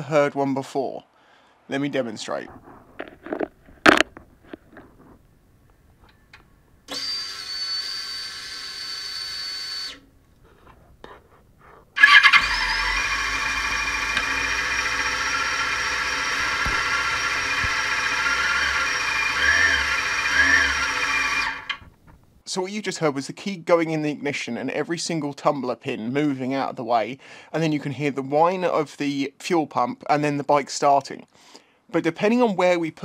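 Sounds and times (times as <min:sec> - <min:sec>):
fuel pump whine: 0:06.3 - 0:10.2, 0:12.0 - 0:22.0
motorcycle engine starting and idling: 0:12.0 - 0:22.1.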